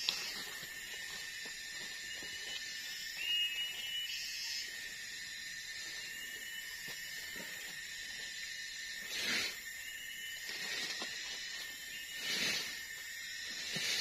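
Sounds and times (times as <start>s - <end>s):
high-pitched insect drone: 0.0s - 14.0s
short whistled calls: 1.9s - 7.8s, 8.4s - 14.0s.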